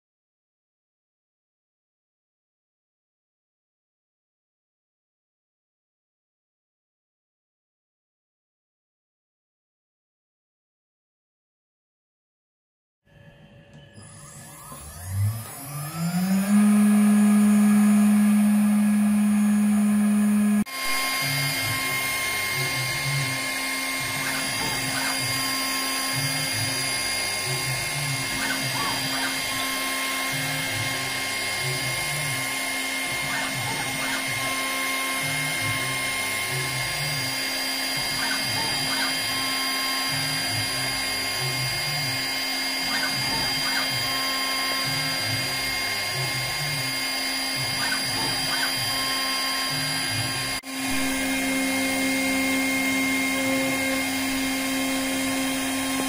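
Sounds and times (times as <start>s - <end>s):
milling machine cutting metal: 13.8s - 56.0s.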